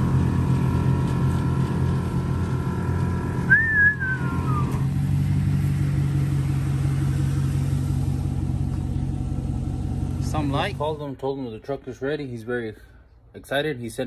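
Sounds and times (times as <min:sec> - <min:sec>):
pickup engine idling: 0:00.0 - 0:11.6
short falling whistle: 0:03.5 - 0:04.8.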